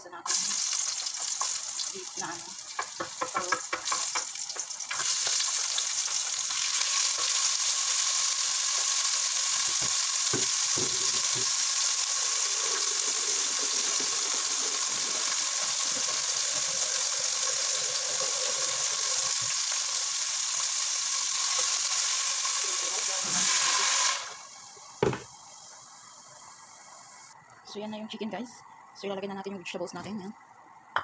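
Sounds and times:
meat sizzling in hot oil: 0.2 - 27.4
light knocks on pot: 25.0 - 25.3.

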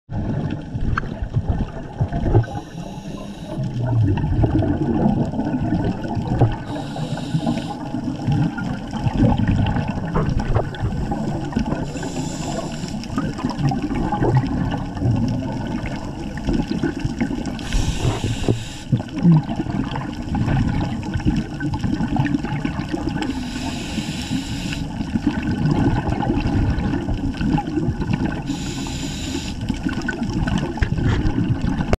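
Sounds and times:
exhaled bubbles gurgling underwater: 0.1 - 31.9
regulator inhalation hiss: 2.4 - 3.8, 6.6 - 7.9, 11.8 - 13.1, 17.6 - 19.0, 23.3 - 25.0, 28.5 - 29.6.

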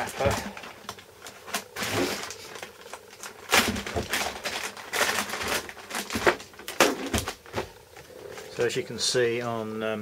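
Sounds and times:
plastic wrapping crinkling: 0.0 - 8.8.

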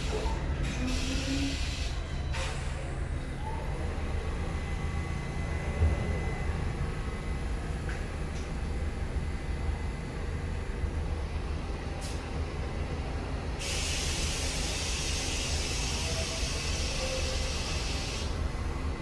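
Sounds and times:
air brakes hissing: 0.0 - 2.9, 13.6 - 18.4
low rumble of subway trains: 0.0 - 19.0.

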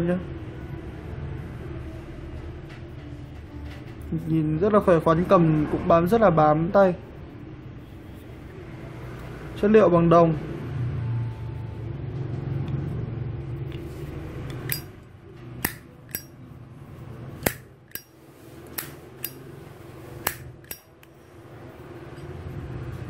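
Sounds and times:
lighter lid clicking: 14.5 - 14.9, 15.6 - 16.3, 17.4 - 18.1, 18.7 - 19.4, 20.3 - 21.1.

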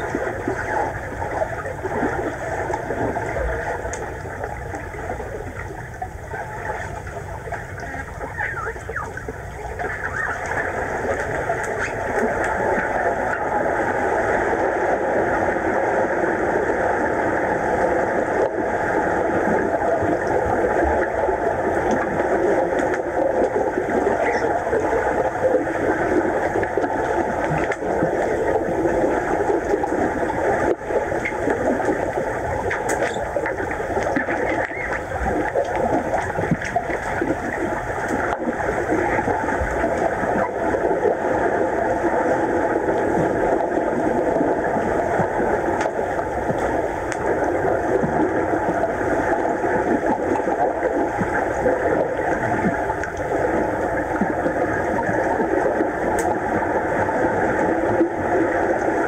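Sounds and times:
muffled underwater rushing: 0.0 - 59.0
faint clicks: 56.1 - 56.4.

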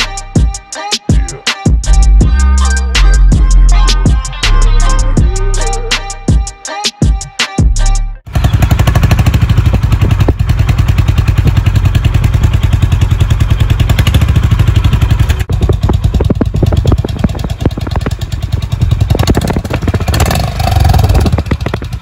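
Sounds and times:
motorcycle exhaust idling: 8.3 - 22.0.

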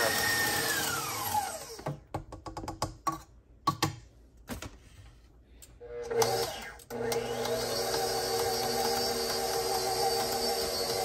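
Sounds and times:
stand mixer motor whine: 0.0 - 1.9, 6.0 - 11.0
clicks and taps: 1.8 - 4.1.

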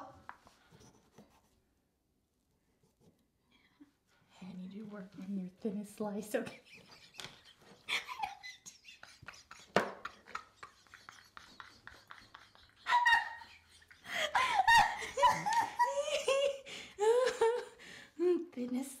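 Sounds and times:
women laughing: 6.4 - 18.4.

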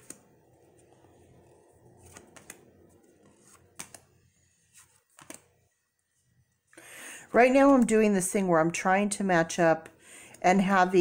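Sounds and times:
cards clicking and sliding: 0.0 - 5.5
cards tapping on pile: 3.2 - 4.0, 5.1 - 5.4.

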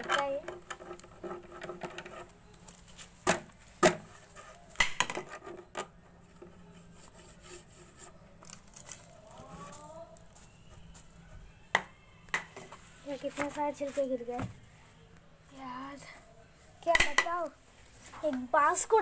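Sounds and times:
brush rubbing and scraping: 6.4 - 11.2.

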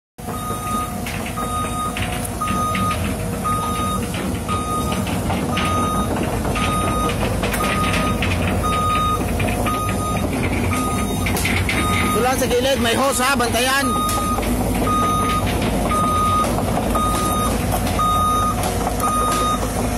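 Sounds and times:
diesel engine running: 0.2 - 19.9
excavator warning beeps: 0.2 - 19.9
metal clanks: 0.2 - 19.9.

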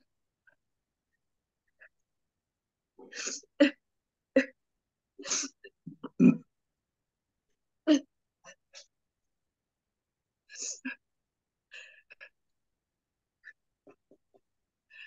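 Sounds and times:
person clearing throat and hacking: 5.9 - 6.5.

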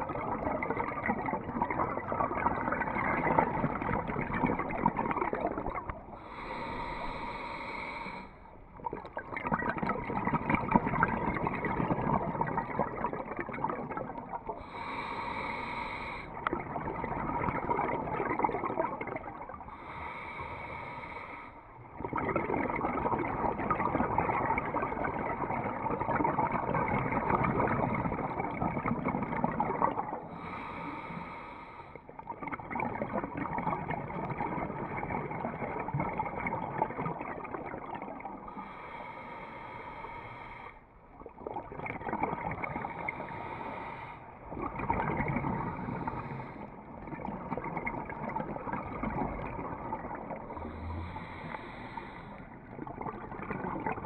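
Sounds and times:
exhaled bubbles rushing: 0.0 - 7.3, 8.5 - 15.2, 16.3 - 20.0, 21.8 - 30.6, 32.1 - 38.7, 41.1 - 43.5, 44.3 - 54.0
hissing in-breaths: 6.2 - 8.4, 14.6 - 16.4, 19.8 - 21.6, 30.3 - 32.0, 38.5 - 40.8, 42.9 - 44.3, 45.6 - 46.8, 50.5 - 52.5.

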